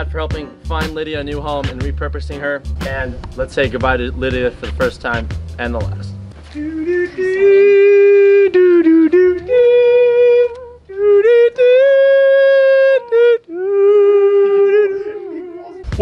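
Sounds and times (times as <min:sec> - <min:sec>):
person singing wordless tune: 0:03.6 - 0:16.0.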